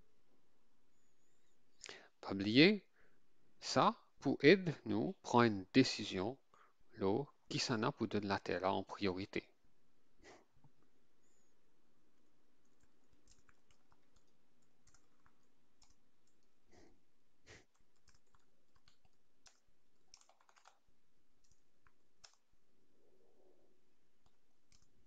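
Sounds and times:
keyboard typing: 0:12.6 - 0:16.6, 0:17.5 - 0:22.5, 0:24.2 - 0:25.0.

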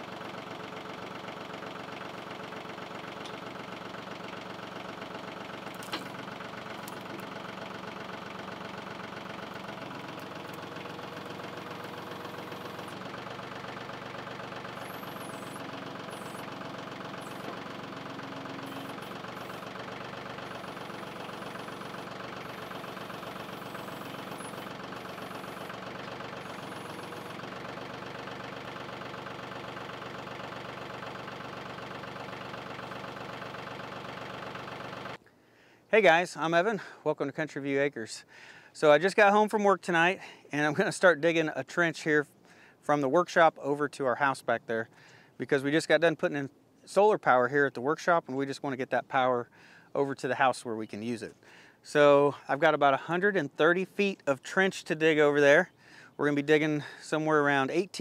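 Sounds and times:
tractor diesel engine running: 0:00.0 - 0:35.3, 0:47.0 - 0:58.0.

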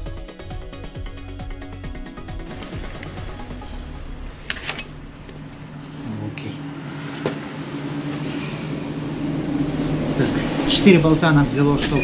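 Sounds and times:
steady low hum: 0:02.4 - 0:11.8.

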